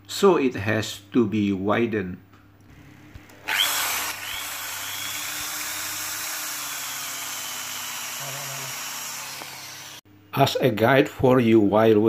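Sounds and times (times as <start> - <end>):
hammer drill running: 3.4 - 10.0.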